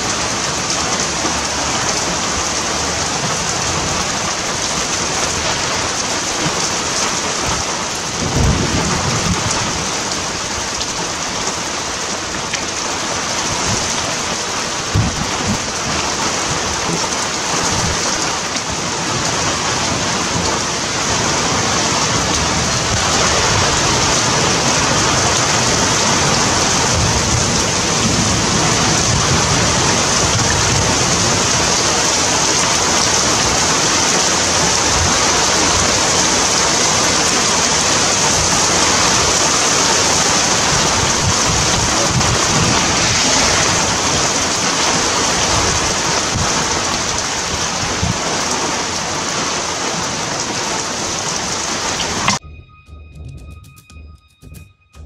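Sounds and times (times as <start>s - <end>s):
heavy rain pouring: 0.0s - 52.4s
low rumbles: 52.0s - 55.0s.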